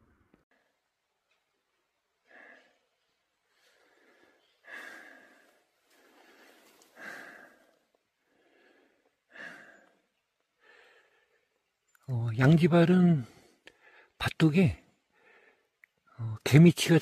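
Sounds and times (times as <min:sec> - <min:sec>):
person breathing heavily: 0:02.2 - 0:02.9, 0:03.5 - 0:11.6, 0:13.2 - 0:14.2, 0:15.1 - 0:15.8.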